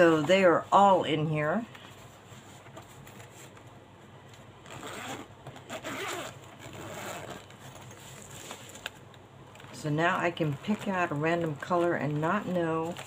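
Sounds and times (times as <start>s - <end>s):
zipper rasping open: 4.6s - 8.6s.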